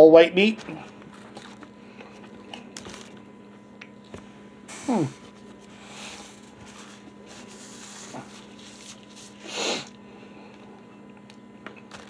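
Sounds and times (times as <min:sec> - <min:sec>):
faint electrical hum: 0:00.0 - 0:12.0
man chewing food: 0:00.6 - 0:12.0
paper napkin rubbing mouth: 0:04.7 - 0:10.0.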